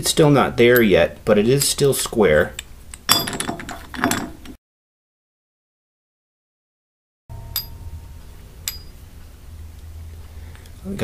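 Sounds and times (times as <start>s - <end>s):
low steady hum: 7.3s - 11.0s.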